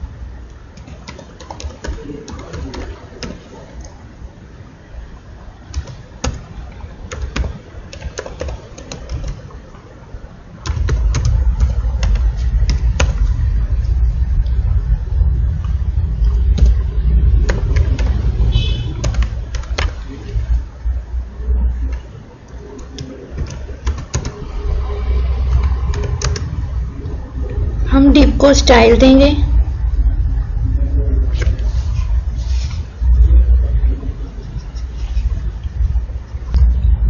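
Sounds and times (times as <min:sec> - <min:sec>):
keyboard keys clicking: 0:00.8 - 0:03.9, 0:05.7 - 0:06.4, 0:07.1 - 0:09.5, 0:10.6 - 0:13.2, 0:19.0 - 0:20.0, 0:22.8 - 0:24.4, 0:25.5 - 0:26.5
loud low rumble: 0:11.0 - 0:21.9, 0:24.4 - 0:37.0.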